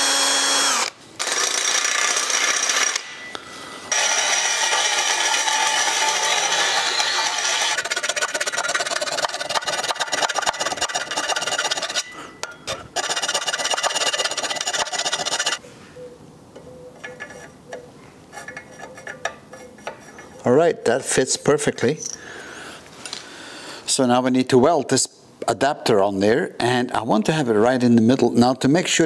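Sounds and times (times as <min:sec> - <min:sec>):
power drill boring metal: 0:00.0 - 0:03.3, 0:03.9 - 0:15.6
file rasping metal: 0:03.9 - 0:12.2, 0:12.9 - 0:15.6.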